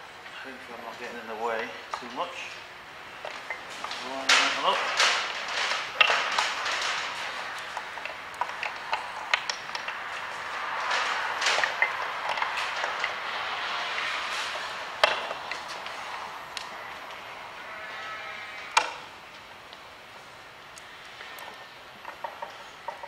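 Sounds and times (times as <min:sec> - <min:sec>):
rustling handling noise: 0:00.9 - 0:17.3.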